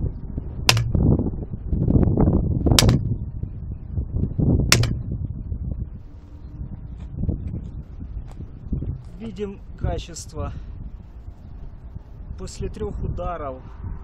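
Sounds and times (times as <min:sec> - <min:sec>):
baton striking sticks: 0:00.7 - 0:01.1, 0:02.8 - 0:03.1, 0:04.7 - 0:05.0.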